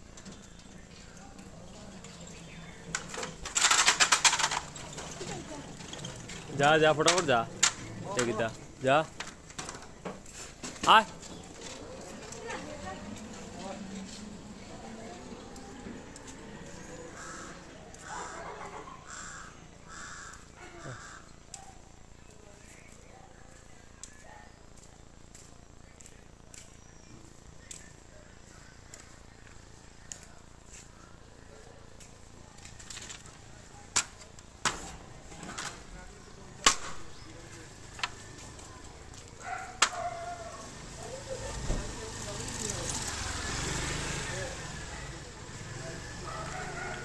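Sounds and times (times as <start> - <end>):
crow cawing: 17.1 - 21.4.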